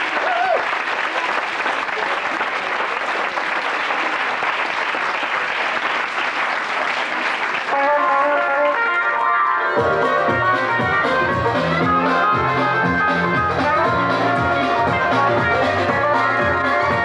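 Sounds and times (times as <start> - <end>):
audience applauding: 0.0 - 9.4
guitar music: 7.9 - 17.0.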